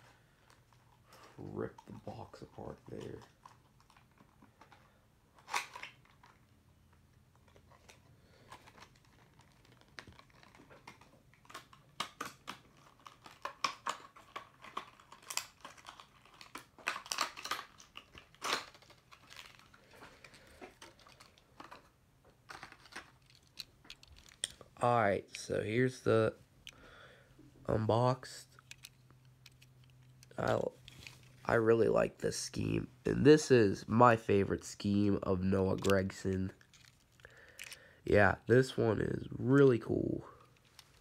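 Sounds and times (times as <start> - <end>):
packaging tearing and crinkling: 5.4 - 6.4, 7.4 - 21.9, 22.5 - 24.6.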